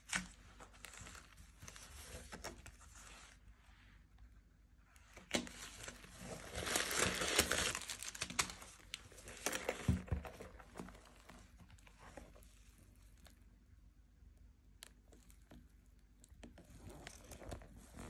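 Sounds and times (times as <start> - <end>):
paper crinkling and rustling: 0.0 - 3.5, 5.0 - 13.4, 16.2 - 18.0.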